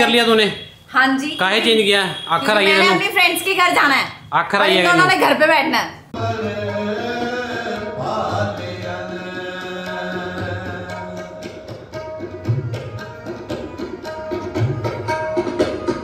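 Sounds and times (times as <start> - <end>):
tabla drumming: 6.2 - 16.0.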